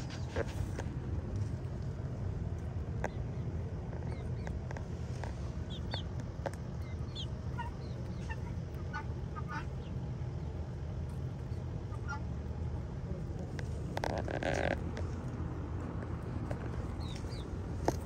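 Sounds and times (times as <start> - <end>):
steady low rumble: 0.0 - 18.0
high bird chirps: 5.7 - 6.1.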